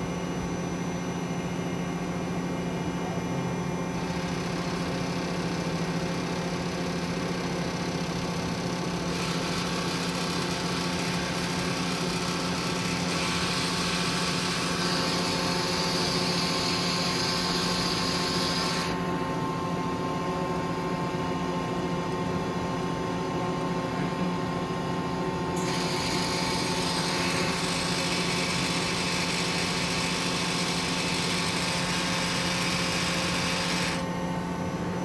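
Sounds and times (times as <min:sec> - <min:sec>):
lathe machine hum: 0:03.2 - 0:20.1, 0:25.5 - 0:35.0.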